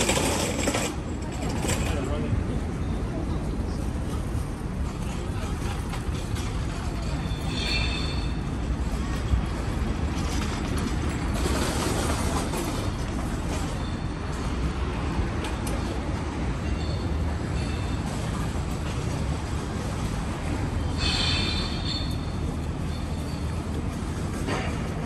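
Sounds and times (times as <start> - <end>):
city street noise: 0.0 - 25.0
train rumbling on tracks: 0.0 - 25.0
faint high squeal: 7.2 - 8.6, 21.0 - 23.7.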